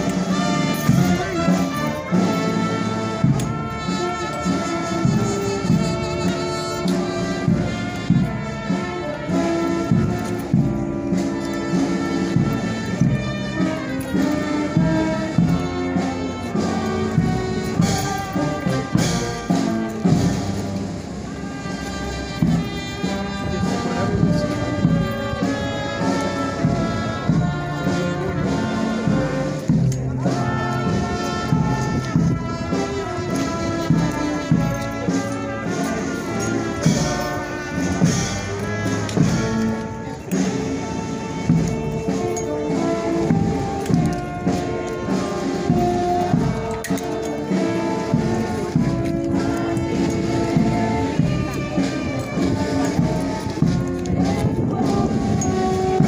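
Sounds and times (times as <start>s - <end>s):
brass band playing: 0.0s - 56.0s.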